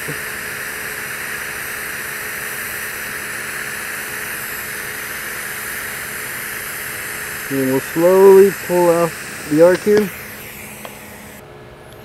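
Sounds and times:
welding arc hissing: 0.0 - 11.4
faint steady hum: 0.0 - 12.0.

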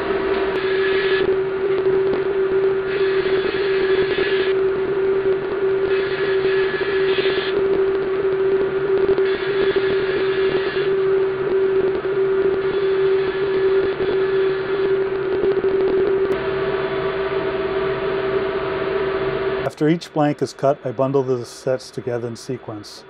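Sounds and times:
table saw and dust collector hum: 2.8 - 4.6, 5.9 - 7.6, 16.4 - 23.0.

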